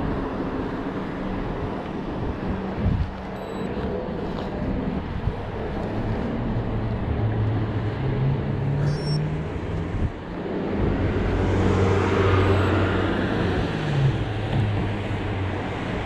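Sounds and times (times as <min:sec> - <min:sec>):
riding wind and road noise: 0:00.0 - 0:16.0
car passing close: 0:06.3 - 0:16.0.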